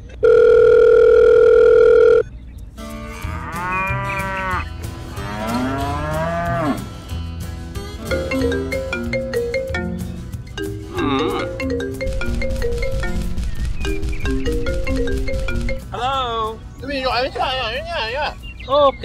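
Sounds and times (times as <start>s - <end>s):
telephone tone: 0.1s - 2.3s
cow mooing: 2.8s - 7.2s, 10.9s - 11.6s.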